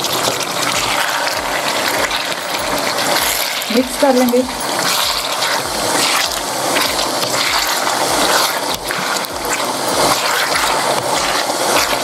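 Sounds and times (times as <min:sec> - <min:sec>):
chicken sizzling in a frying pan: 0:00.0 - 0:12.0
wooden spatula scraping a pan: 0:00.0 - 0:12.0.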